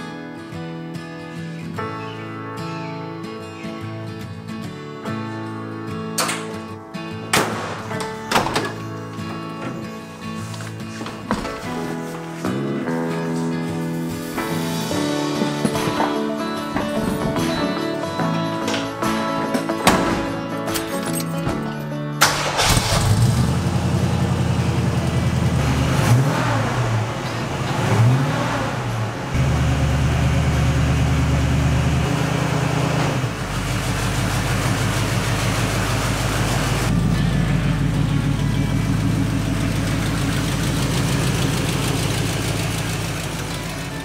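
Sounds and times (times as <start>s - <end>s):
car engine revving and idling: 22.3s - 44.0s.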